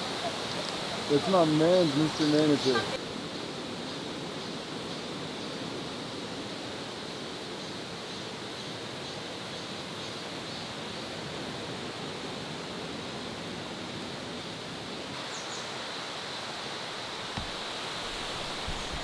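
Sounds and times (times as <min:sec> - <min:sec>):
outdoor background hiss: 0:00.0 - 0:19.0.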